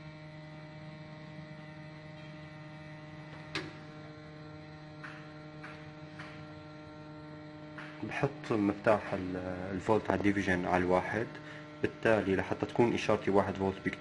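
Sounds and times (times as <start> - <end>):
electrical mains hum: 0.0 - 14.0
rotary switch clicks: 3.4 - 3.8.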